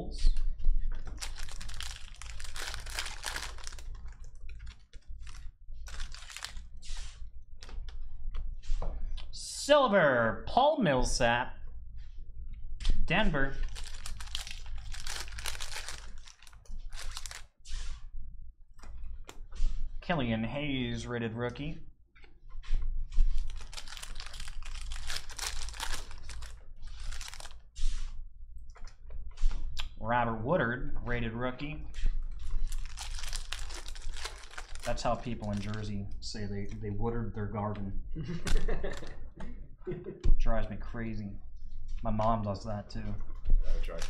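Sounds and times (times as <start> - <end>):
foil wrapper crinkling: 1.0 - 7.0, 13.6 - 17.5, 23.3 - 27.6, 32.4 - 35.9.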